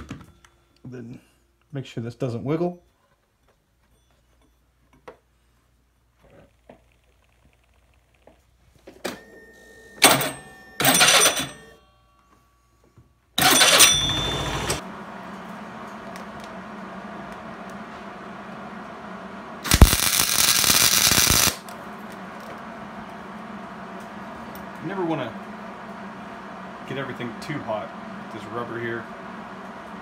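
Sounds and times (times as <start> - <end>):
welder low hum: 13.4 - 30.0
electric arc welding crackle: 19.6 - 23.4.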